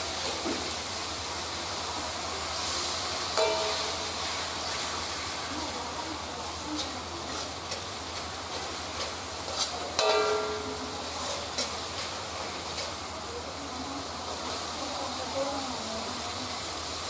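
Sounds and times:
sauce sizzling in a wok: 0.0 - 17.0
metallic clang: 3.4 - 4.4, 10.0 - 10.9
metal spatula scraping a wok: 3.4 - 5.2, 6.8 - 13.0.

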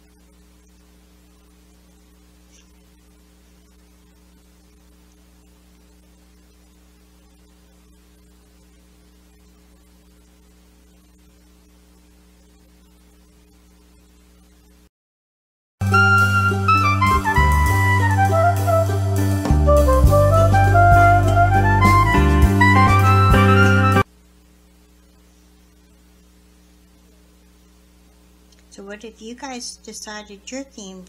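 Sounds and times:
faint mains hum: 0.0 - 14.9, 15.8 - 31.0
low background hiss: 24.0 - 31.0.

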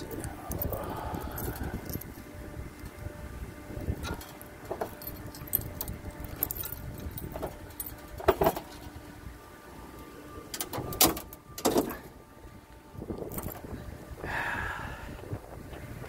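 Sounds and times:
keys jangling: 0.0 - 2.2, 4.0 - 9.0, 13.2 - 13.6
metallic clatter: 4.0 - 9.0
trunk lock releasing: 10.5 - 12.1.

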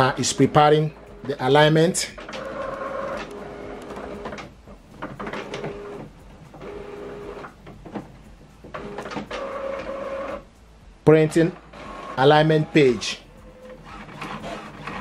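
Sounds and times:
printer motors running: 0.0 - 10.5, 11.6 - 15.0
printer clicks: 2.1 - 8.0.

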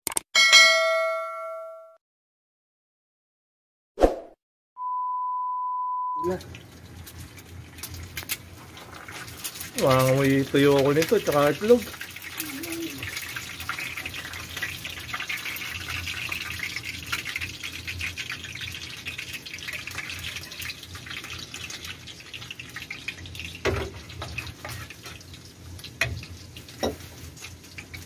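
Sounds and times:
oil sizzling in a frying pan: 6.2 - 28.0.

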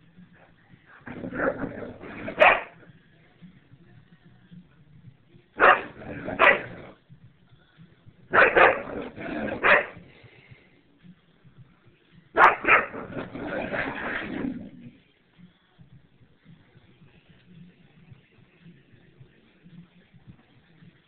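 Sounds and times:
dog barking: 1.3 - 2.8, 5.6 - 6.8, 8.3 - 10.0, 12.4 - 13.3.

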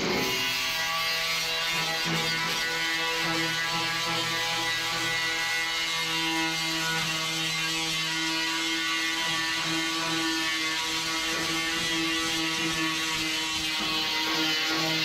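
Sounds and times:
angle grinder grinding steel: 0.0 - 15.0.

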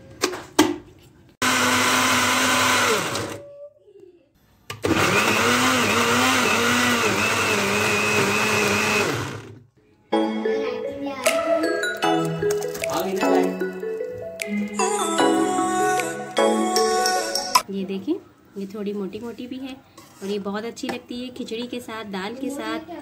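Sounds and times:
electric blender grinding: 1.4 - 3.4, 4.8 - 9.6.

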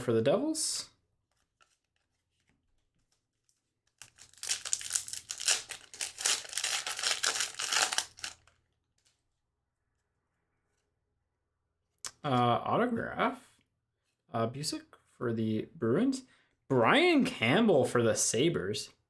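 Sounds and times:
wrapper tearing and crinkling: 3.9 - 8.6.

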